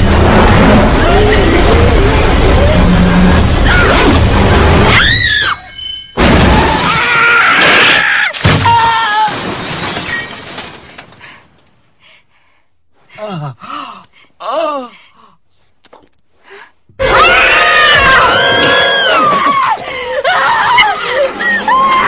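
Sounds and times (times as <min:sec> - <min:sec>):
sudden hits: 0:00.0 - 0:05.0
loud crashing: 0:00.0 - 0:05.4, 0:06.1 - 0:11.2
tense music: 0:00.0 - 0:05.7
people screaming: 0:04.8 - 0:05.8, 0:06.5 - 0:09.4, 0:17.0 - 0:22.0
glass shattering: 0:05.7 - 0:11.2
shrill wavering cries: 0:17.0 - 0:22.0.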